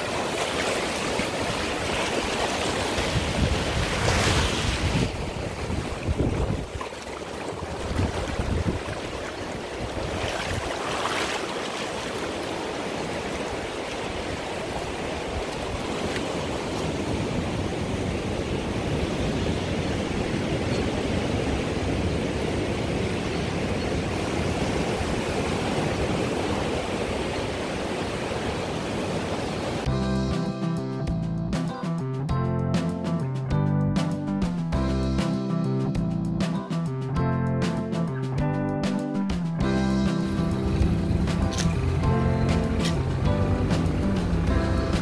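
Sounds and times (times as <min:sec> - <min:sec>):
sea waves at the shore: 0:00.0 - 0:31.0, 0:37.7 - 0:45.0
guitar music: 0:29.9 - 0:45.0.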